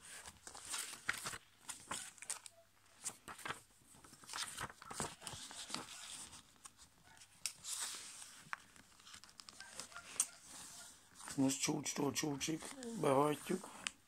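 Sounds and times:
paper crackling: 0.0 - 11.6, 12.4 - 14.0
fingers swishing along paper folds: 4.3 - 6.7.

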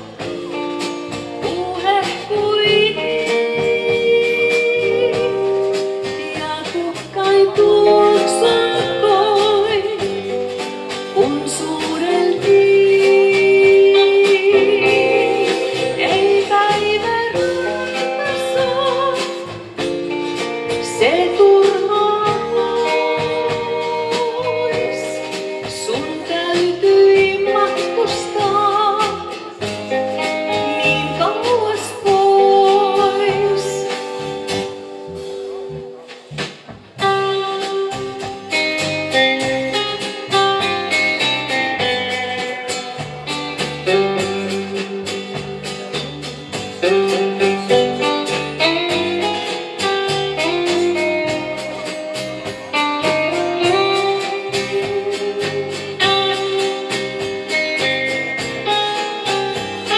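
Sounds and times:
bass line: 0.0 - 59.9
drums: 0.0 - 59.9
lead melody with vibrato: 1.4 - 36.1.

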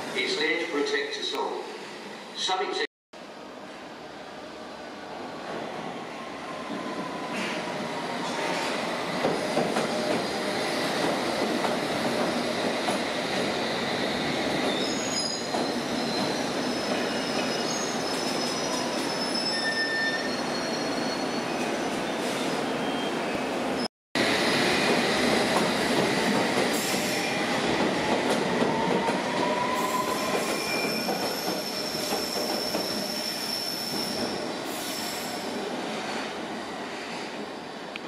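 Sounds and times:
high-pitched wheel squeals: 14.7 - 21.6, 29.5 - 35.2.

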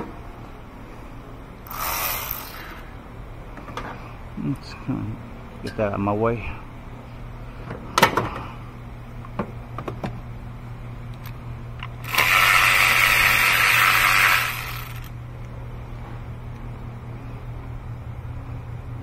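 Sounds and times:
steady low hum: 0.0 - 19.0
loud whirring hiss: 1.6 - 3.2, 12.0 - 15.2.

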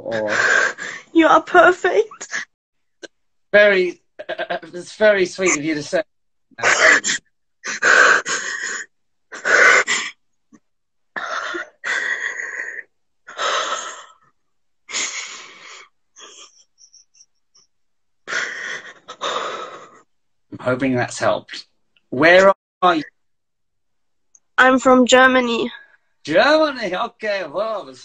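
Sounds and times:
person sobbing with gasping breaths: 0.0 - 1.1, 6.6 - 10.2, 11.2 - 14.2, 18.3 - 20.1.

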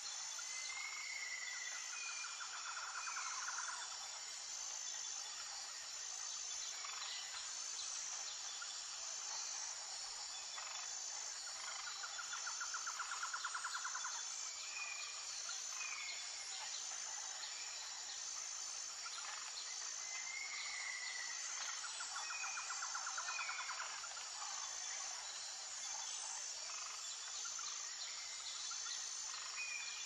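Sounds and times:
pulsing insect chorus: 0.0 - 30.0.

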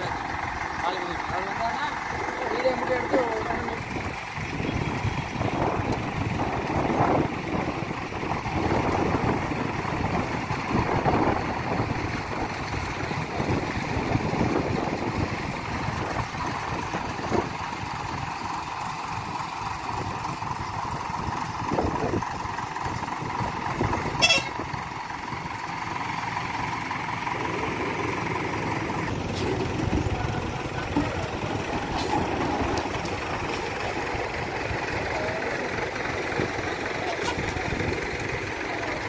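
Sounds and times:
heavy diesel engines running: 0.0 - 39.0
horn toot: 24.1 - 24.6.

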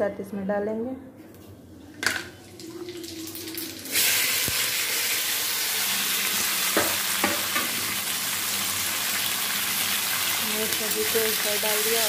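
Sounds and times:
vegetables sizzling in hot oil: 3.9 - 12.0.

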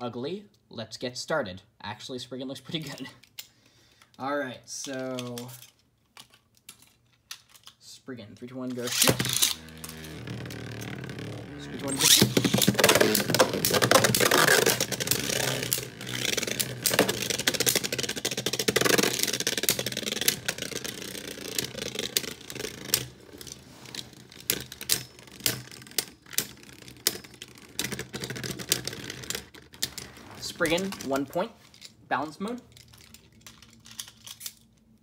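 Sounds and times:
spinning tops clattering: 11.8 - 23.8.

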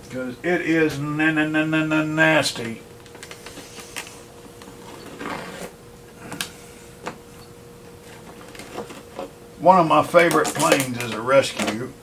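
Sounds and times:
faint steady hum: 0.0 - 12.0
scraping rustle: 3.4 - 5.8.

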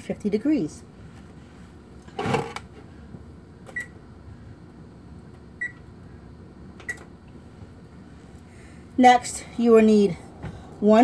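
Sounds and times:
oven keypad beeping: 3.7 - 4.0, 5.6 - 5.9, 6.8 - 7.1.

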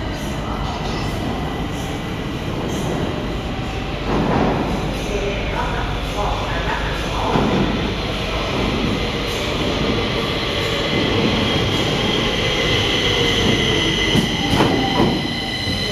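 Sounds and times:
train wheels on rails: 0.0 - 15.9
steady high squeal: 10.4 - 15.9.

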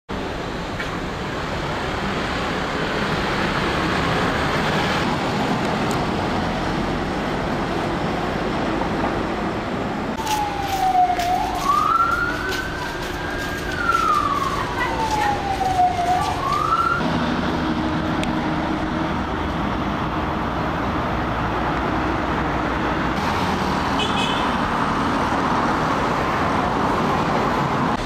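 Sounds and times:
street noise: 0.1 - 28.0
wind: 0.1 - 28.0
siren wailing: 10.2 - 17.1.

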